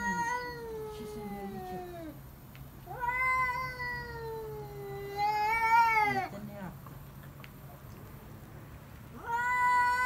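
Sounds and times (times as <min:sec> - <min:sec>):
cat yowling: 0:00.0 - 0:02.2, 0:02.9 - 0:06.4, 0:09.2 - 0:10.0.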